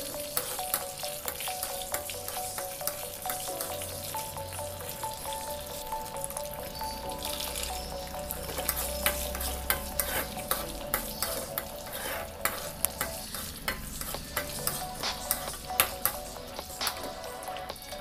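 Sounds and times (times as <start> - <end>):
food sizzling in oil: 0.0 - 18.0
steel spoon scraping a pan: 6.8 - 16.8.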